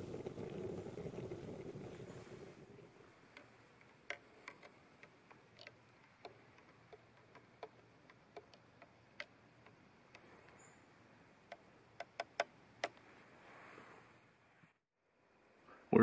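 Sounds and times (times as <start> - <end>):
faint small clicks: 3.3 - 10.9.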